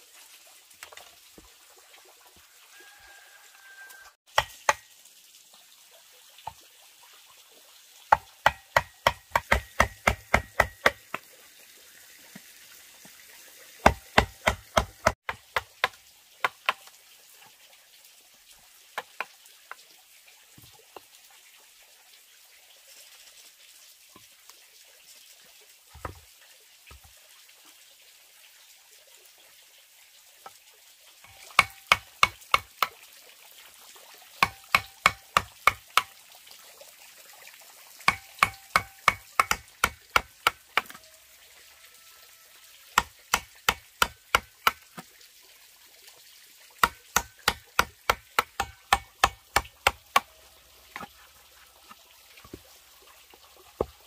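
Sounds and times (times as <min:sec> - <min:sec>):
mallet knocking chisel into bamboo: 0:08.1 - 0:11.0, 0:13.8 - 0:15.7, 0:34.4 - 0:36.1, 0:38.1 - 0:41.0.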